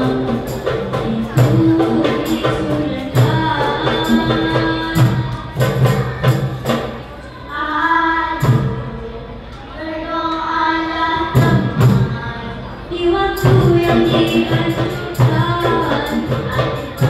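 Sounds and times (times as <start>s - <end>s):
hand percussion beats: 0.0s - 7.2s, 13.3s - 17.0s
girls singing in harmony: 0.0s - 17.0s.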